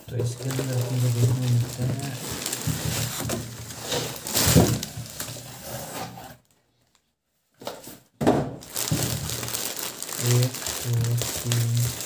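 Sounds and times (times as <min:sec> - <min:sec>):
cardboard box rustling and scraping: 0:01.9 - 0:06.4
knock: 0:08.2 - 0:08.6.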